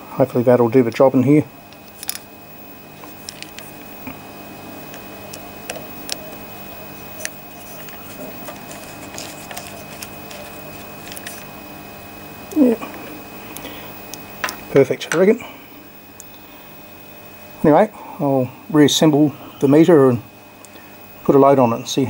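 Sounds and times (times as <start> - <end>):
faint steady hum: 0.0 - 22.0
screwdriver clicking and scraping: 7.2 - 11.5.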